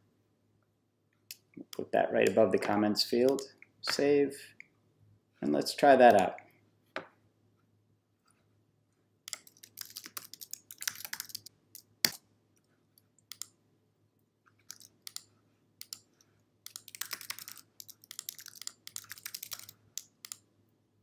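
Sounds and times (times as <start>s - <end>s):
typing on a computer keyboard: 9.3s - 12.2s, 13.2s - 13.5s, 14.6s - 20.4s.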